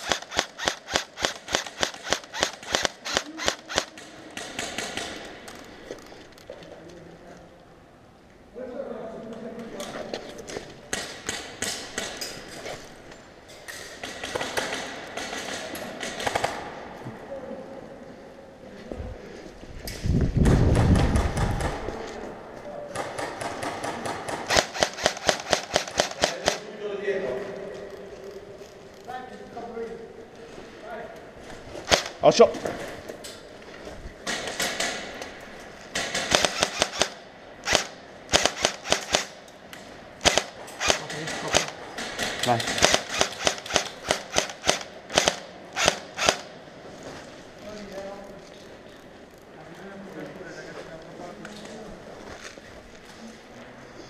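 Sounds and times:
airsoft rifles firing: 0.0s - 5.6s, 10.9s - 12.4s, 13.8s - 16.9s, 20.4s - 22.1s, 22.9s - 26.8s, 31.8s - 32.2s, 34.2s - 39.5s, 40.2s - 46.6s.

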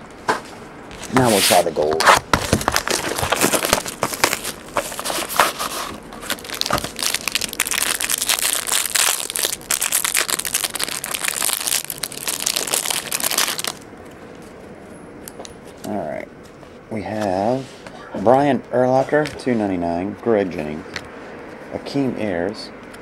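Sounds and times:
plastic wrap crinkling: 1.9s - 14.4s.

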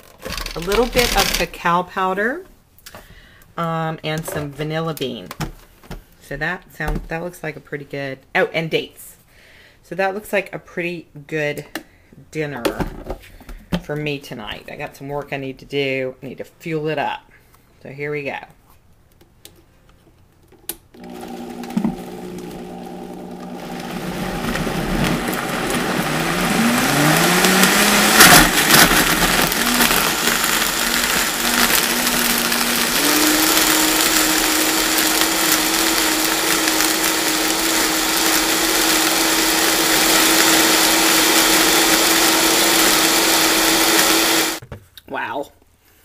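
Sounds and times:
blender motor blending: 0.2s - 1.5s, 21.0s - 44.6s.

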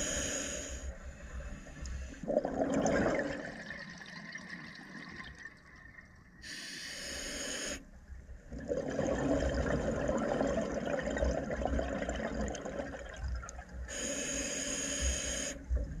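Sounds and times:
regulator inhalation hiss: 0.0s - 1.0s, 6.4s - 7.8s, 13.9s - 15.7s
exhaled bubbles rumbling: 2.2s - 6.3s, 8.4s - 13.8s.

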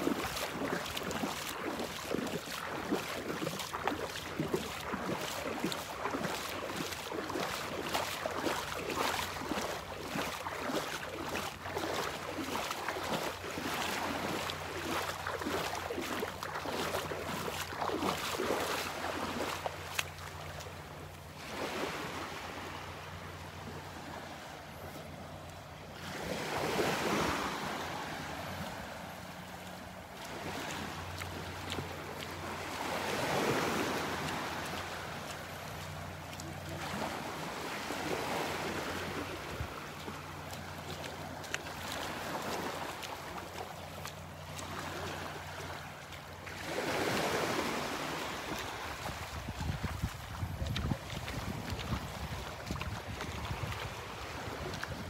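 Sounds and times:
footsteps splashing in shallow water: 0.0s - 55.0s
gentle surf: 0.0s - 55.0s
wind on microphone: 49.0s - 55.0s.

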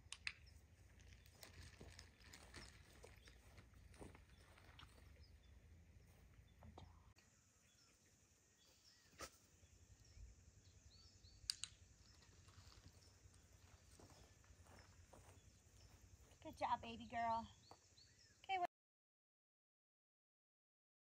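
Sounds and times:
soft clicks: 11.4s - 11.8s.

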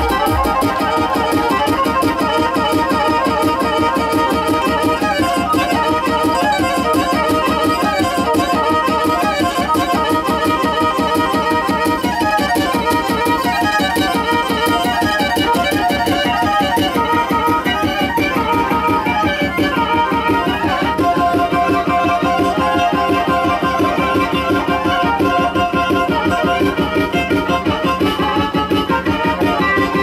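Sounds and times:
fast dance music melody: 0.0s - 2.6s.

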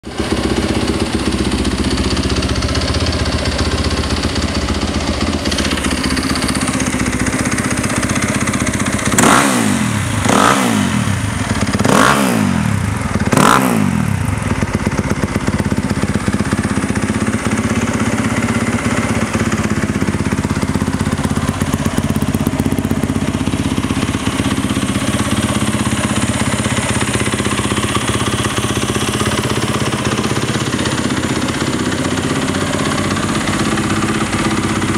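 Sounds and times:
motorcycle engine idling: 0.0s - 34.9s.

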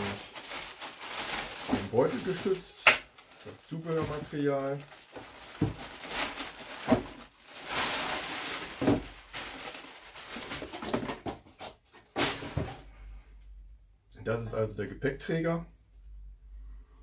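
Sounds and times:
plastic bag crinkling: 0.0s - 11.3s
cardboard packing rustling: 0.0s - 12.9s.

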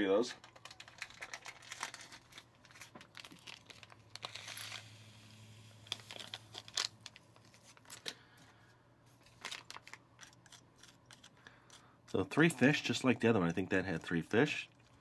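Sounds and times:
candy packet crinkling: 0.1s - 5.0s, 5.8s - 8.2s, 9.2s - 13.1s
packet ripping: 0.4s - 8.2s, 9.2s - 11.8s.

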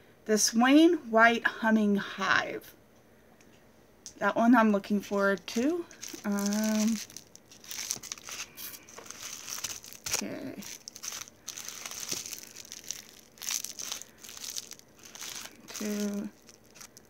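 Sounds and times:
packaging crinkling and rustling: 5.4s - 17.0s.

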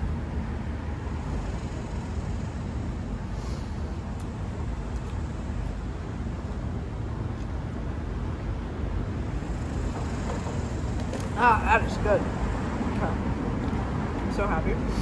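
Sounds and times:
street traffic rumble: 0.0s - 15.0s.

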